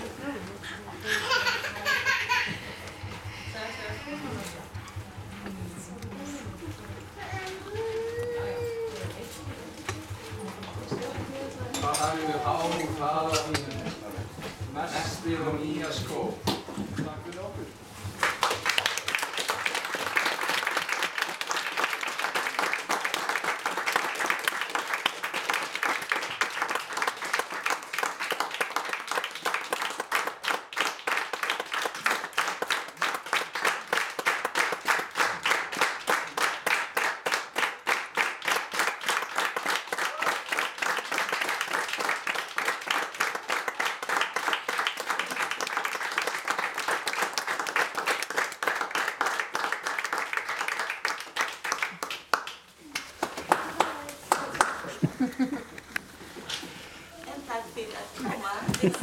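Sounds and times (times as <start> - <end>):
audience applauding: 18.0 - 56.9.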